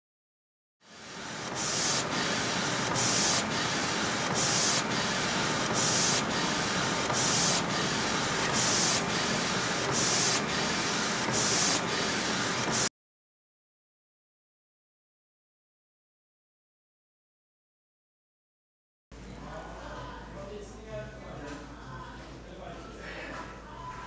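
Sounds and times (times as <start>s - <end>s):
inkjet printer carriage whirring: 0.9s - 12.9s.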